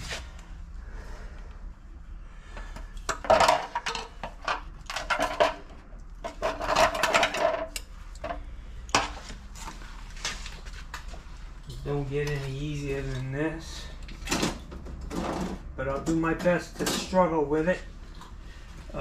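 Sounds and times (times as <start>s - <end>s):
tools and wires clicking and scraping: 2.6s - 17.4s.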